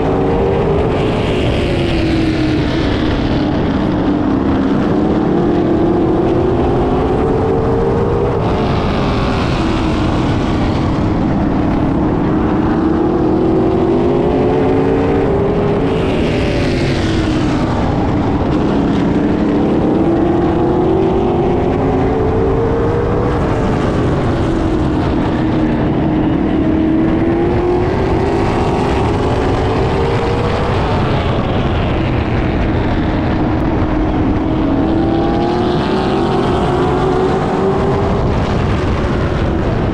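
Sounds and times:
stock car engines racing: 0.0 - 39.9.

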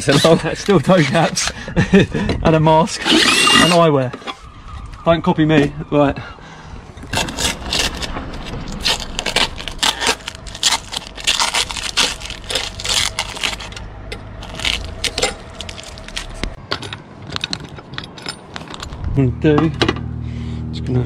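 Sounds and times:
paper and tape crackling: 7.1 - 13.8, 14.4 - 16.6.

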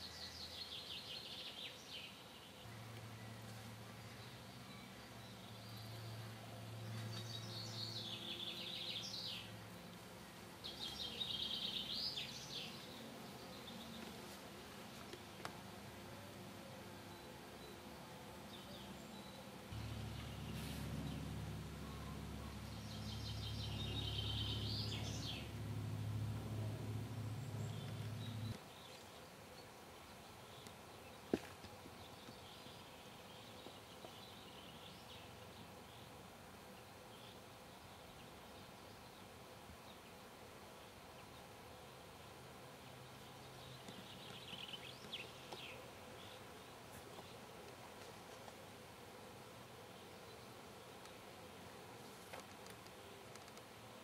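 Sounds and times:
quiet outdoor background noise: 0.0 - 54.0
distant bird chirps: 19.0 - 28.6
low droning hum: 19.8 - 28.6
songbird singing trilled phrases: 21.8 - 25.5.

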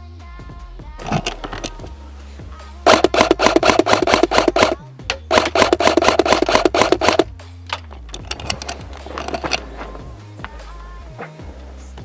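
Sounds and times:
background music: 0.0 - 12.0
scattered clicks: 1.0 - 1.8, 2.9 - 9.6
airsoft rifle full-auto fire: 2.9 - 7.3.

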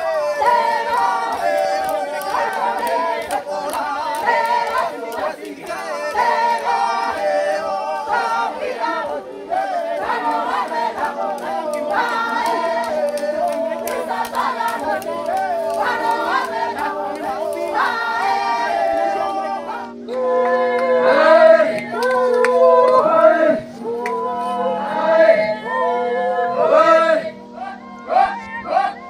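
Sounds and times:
group singing a chant: 0.0 - 29.0.

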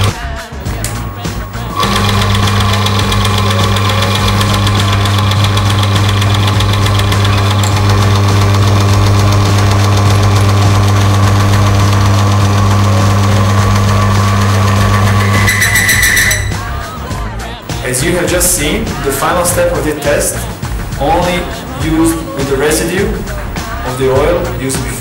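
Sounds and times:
machine motor humming: 0.0 - 25.0.

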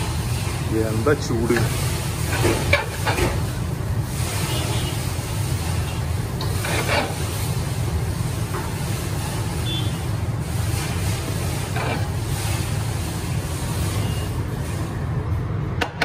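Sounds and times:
metal spoon scraping in pot: 6.4 - 7.3, 11.6 - 12.6.

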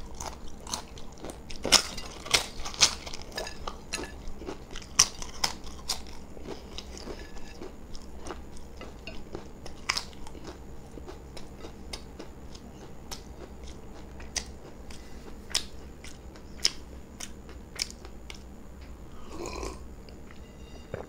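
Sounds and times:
crunching and chewing crisp wafer: 0.0 - 18.5.

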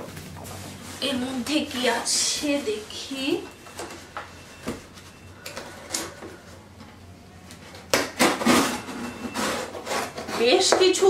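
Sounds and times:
packing tape scraping and tearing: 7.8 - 11.0.

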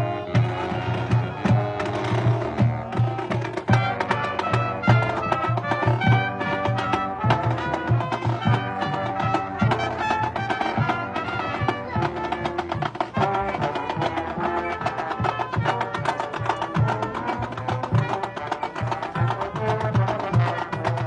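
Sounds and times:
marching band playing: 0.0 - 21.0.

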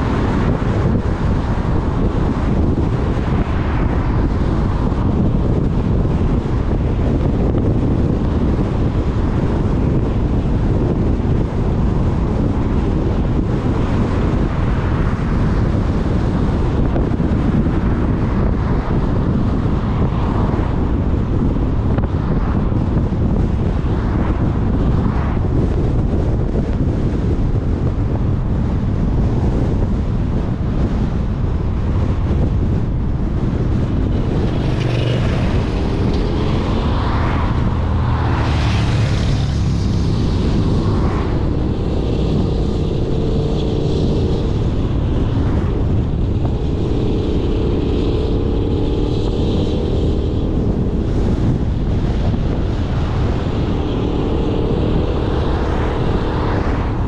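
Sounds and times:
car road and wind noise: 0.0 - 57.0
wind buffeting microphone: 0.0 - 57.0
vehicles swishing past: 31.4 - 57.0.

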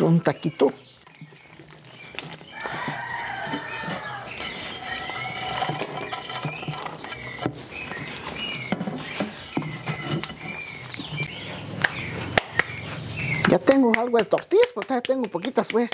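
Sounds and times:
high chirping animal calls: 0.2 - 14.2
wooden spoon stirring crisp pieces: 0.4 - 11.2
small clicks and scrapes: 1.0 - 11.1.

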